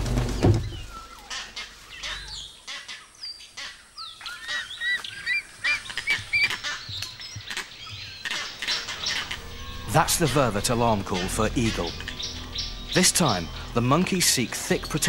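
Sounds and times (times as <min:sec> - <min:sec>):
monkey alarm calls: 0:00.7 - 0:15.0.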